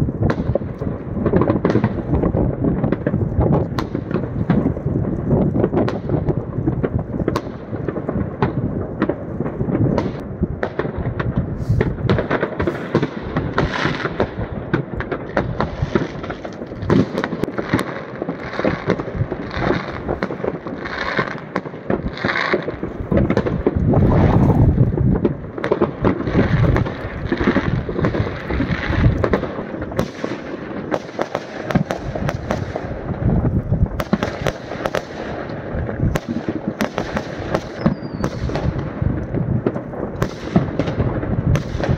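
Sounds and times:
fireworks bangs and crackling: 0.0 - 41.9.

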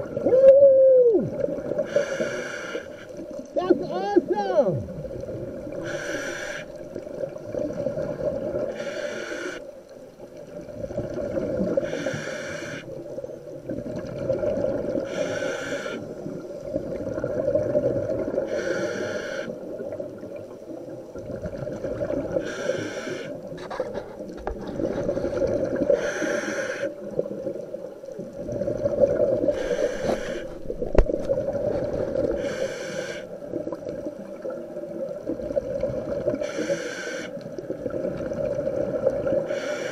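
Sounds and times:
regulator inhale hiss: 1.8 - 3.2, 5.7 - 6.9, 8.7 - 9.7, 11.8 - 13.0, 15.0 - 16.4, 18.4 - 19.6, 22.4 - 23.5, 25.9 - 27.0, 29.5 - 30.7, 32.2 - 33.4, 36.4 - 37.5, 39.4 - 39.9
exhaust bubbles burbling: 6.8 - 8.7, 10.5 - 11.8, 13.6 - 15.1, 16.6 - 18.5, 19.7 - 22.5, 27.0 - 32.4.

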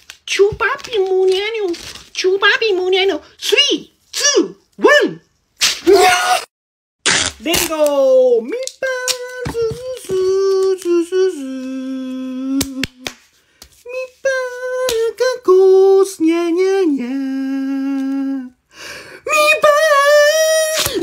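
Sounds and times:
man singing wordless notes: 8.4 - 13.0, 13.9 - 18.6.

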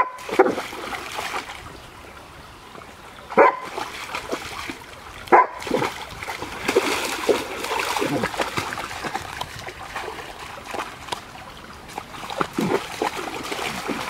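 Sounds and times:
dog splashing in water: 0.0 - 1.7, 3.3 - 14.0
water trickling: 0.6 - 14.0
dog barking: 3.4 - 3.7, 5.3 - 5.7.

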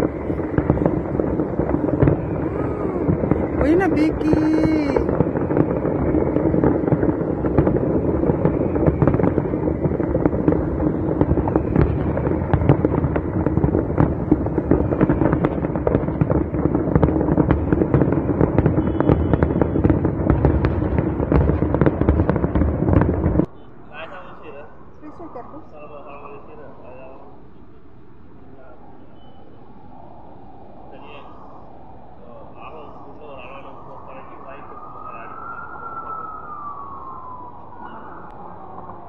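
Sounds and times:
fireworks bursting and crackling: 0.0 - 23.5.

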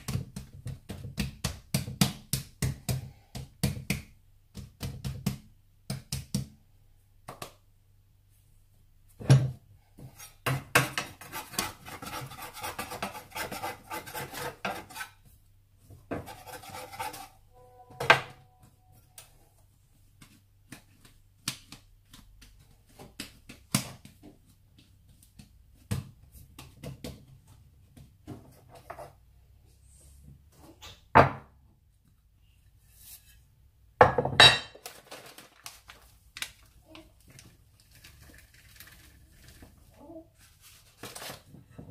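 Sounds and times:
hands kneading dough: 0.0 - 9.2, 19.1 - 29.6.

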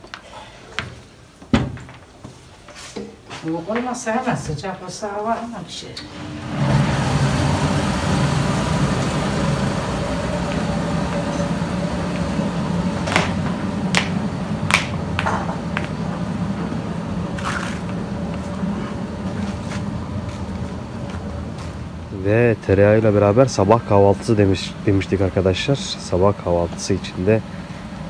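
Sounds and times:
butter churn humming and sloshing: 6.0 - 28.0.

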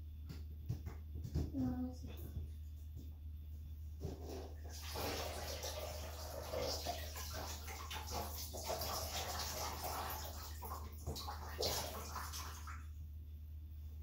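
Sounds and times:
water splashing in a bathtub: 4.0 - 13.0.

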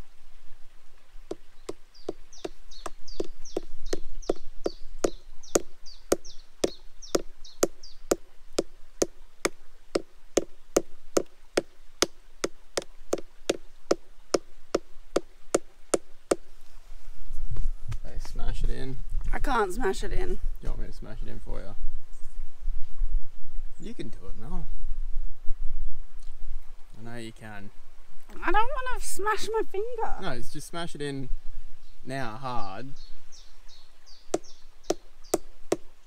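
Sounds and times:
hammer knocking coin into tree: 5.0 - 8.2.

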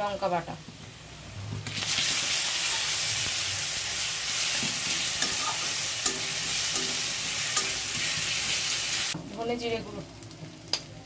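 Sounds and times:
paste sizzling in hot oil: 1.6 - 10.9
metal spatula stirring: 4.4 - 9.0.

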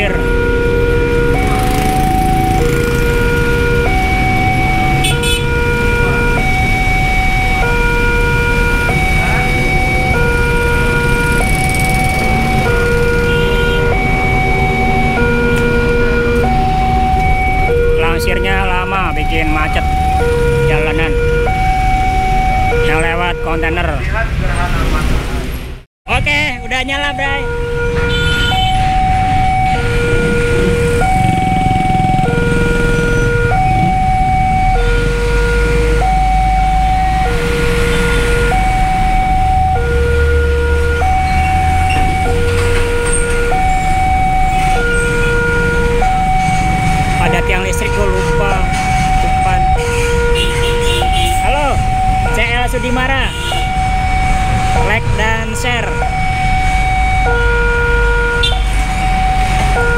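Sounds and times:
two-tone crossing alarm: 0.0 - 24.1, 26.1 - 59.9
road traffic engine rumble: 0.0 - 59.9.

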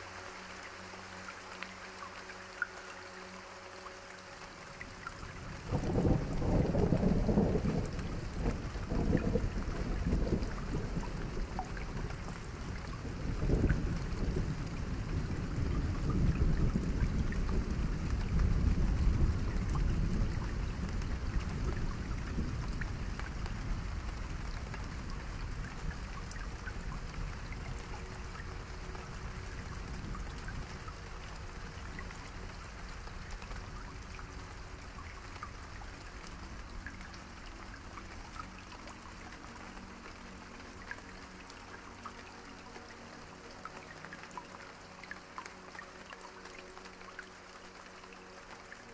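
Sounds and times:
faint drip-like ticks: 0.0 - 48.9
rain falling: 0.0 - 48.9.

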